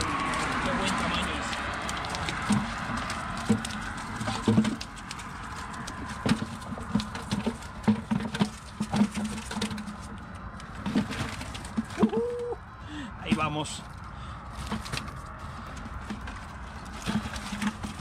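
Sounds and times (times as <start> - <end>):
fish flopping on wet concrete: 0.0 - 7.8
fish thumping against plastic bucket: 1.6 - 10.0.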